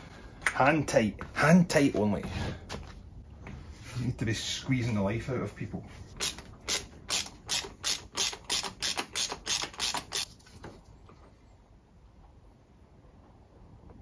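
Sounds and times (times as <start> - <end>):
socket ratchet clicking: 6.2 - 10.3.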